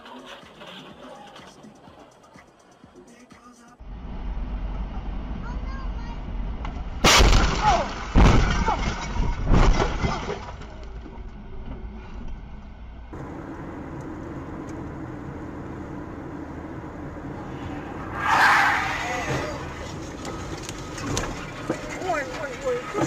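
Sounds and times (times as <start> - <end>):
road noise from car: 3.8 - 23.0
car crash impacts: 7.0 - 10.8
breaking and scraping: 7.0 - 11.1, 18.3 - 23.0.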